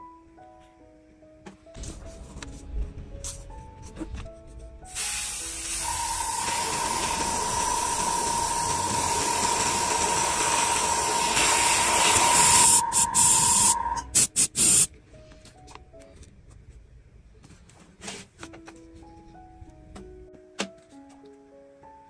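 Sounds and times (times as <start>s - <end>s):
short spray spurts: 4.9s - 14.9s
spray nozzle hissing with whistle: 4.9s - 14.9s.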